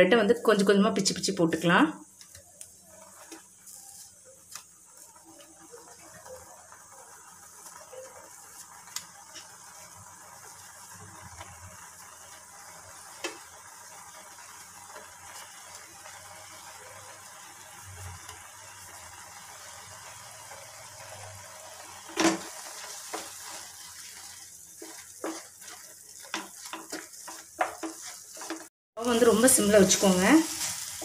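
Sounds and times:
mixture simmering in a pan: 1.3s - 31.0s
wooden spatula scraping a pan: 2.9s - 4.2s, 21.8s - 28.7s, 29.8s - 31.0s.

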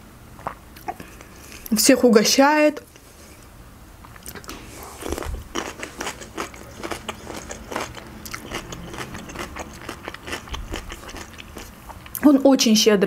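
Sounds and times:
chewing crunchy food: 4.0s - 12.2s.

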